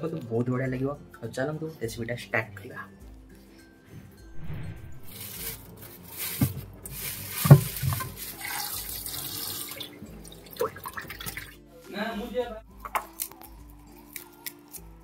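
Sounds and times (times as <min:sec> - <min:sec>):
clunks of objects handled: 0:07.4 - 0:08.2
tap water running into sink: 0:07.4 - 0:11.5.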